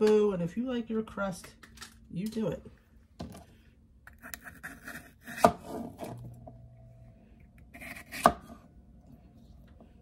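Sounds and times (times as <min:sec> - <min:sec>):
knife cutting pepper: 0:04.1 - 0:06.2, 0:07.6 - 0:08.6.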